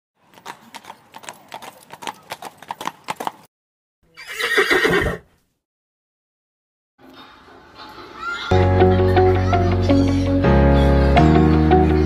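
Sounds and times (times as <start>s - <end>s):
horse hooves clip-clopping: 0.2s - 3.5s
horse neighing: 4.1s - 5.3s.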